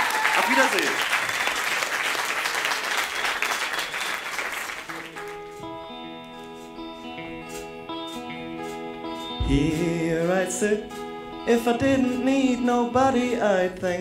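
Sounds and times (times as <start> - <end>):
audience applause: 0.0 - 5.6
live band playing: 4.8 - 14.0.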